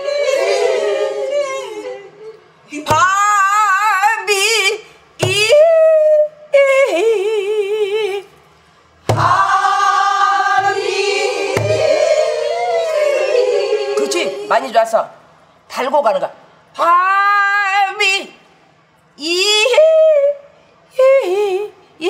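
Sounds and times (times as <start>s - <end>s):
several voices singing together: 0.0s - 3.2s, 9.0s - 14.7s
woman singing with vibrato: 0.0s - 8.4s, 9.1s - 14.5s, 19.2s - 22.0s
barrel drum strokes: 9.0s - 12.3s.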